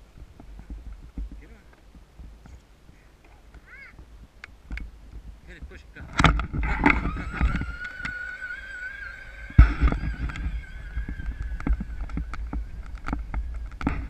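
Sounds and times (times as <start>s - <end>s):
wind rumble on microphone: 0.0s - 14.0s
electric motor whine: 6.2s - 14.0s.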